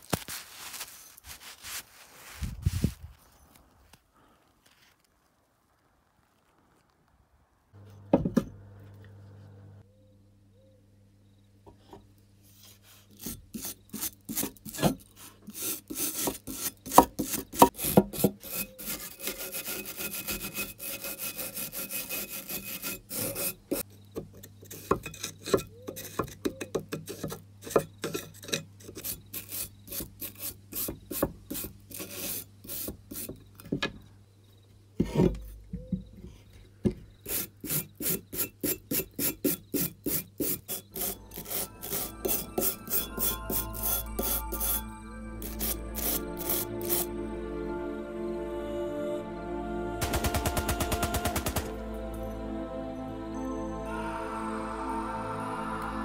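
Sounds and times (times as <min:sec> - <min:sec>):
brush scrubbing rusty metal: 0:12.5 - 0:23.8, 0:28.0 - 0:33.3, 0:37.2 - 0:47.1.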